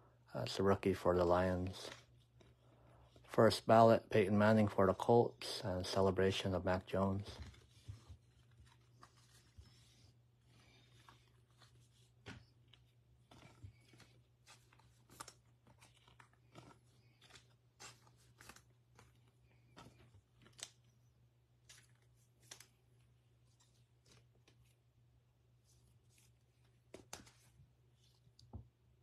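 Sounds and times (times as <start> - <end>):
trading cards clicking and rustling: 10.6 - 21.0, 21.6 - 24.8, 26.2 - 27.6.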